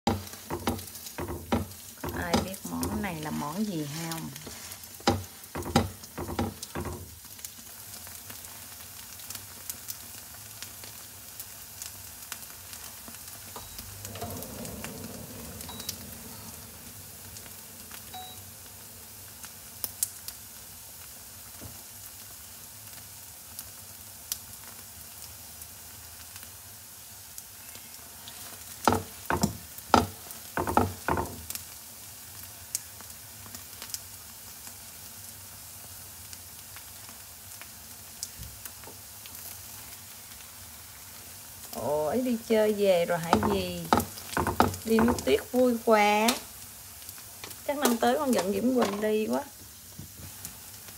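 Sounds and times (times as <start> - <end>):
oil sizzling in a pan: 0.0 - 50.9
spatula knocking against pan: 0.1 - 3.0, 5.0 - 7.1, 28.9 - 31.4, 43.3 - 45.3.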